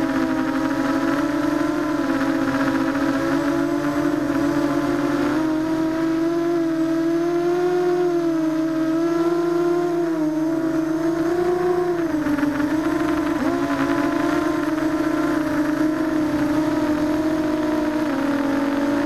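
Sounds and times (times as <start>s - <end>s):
quadcopter motors whining: 0.0s - 19.0s.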